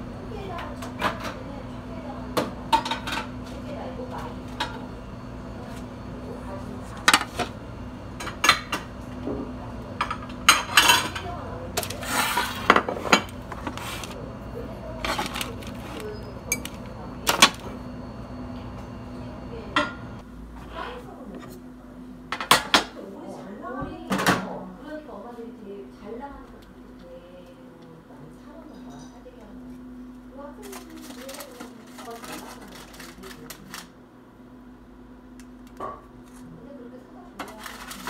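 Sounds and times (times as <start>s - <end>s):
steady low hum: 0.0s - 38.0s
dishes clinking and knocking: 2.4s - 3.3s, 8.2s - 11.4s, 12.3s - 13.8s, 19.7s - 20.1s.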